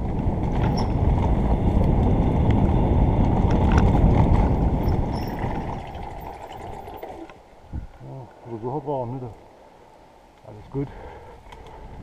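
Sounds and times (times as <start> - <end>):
bike tyres rolling on dirt: 0.0 - 8.0
wind rumbling on microphone: 0.0 - 9.2, 10.5 - 12.0.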